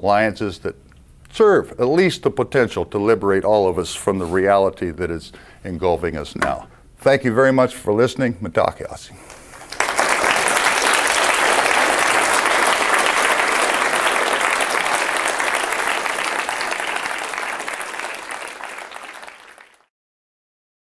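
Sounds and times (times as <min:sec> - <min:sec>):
audience applauding: 0:09.2 - 0:19.9.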